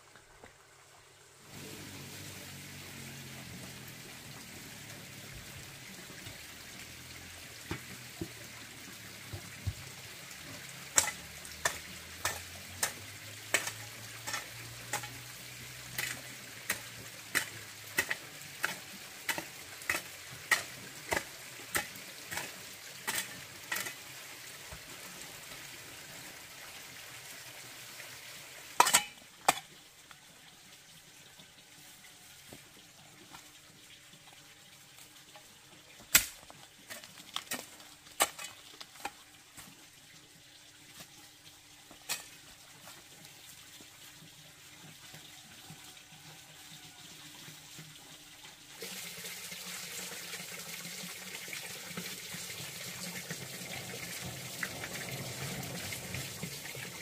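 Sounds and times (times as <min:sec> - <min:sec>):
food sizzling in a pan: 0:01.5 - 0:05.2, 0:06.1 - 0:24.0.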